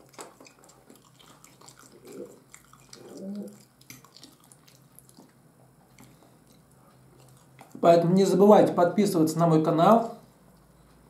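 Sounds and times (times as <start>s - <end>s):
close chewing mouth sounds: 0.0s - 8.1s.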